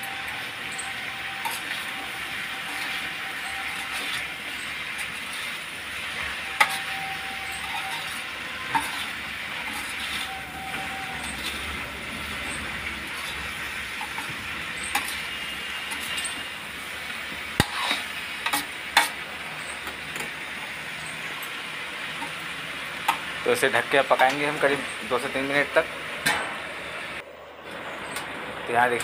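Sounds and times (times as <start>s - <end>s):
metal spatula scraping a pan: 0.0s - 21.5s
pumpkin sizzling in a pan: 0.0s - 27.2s.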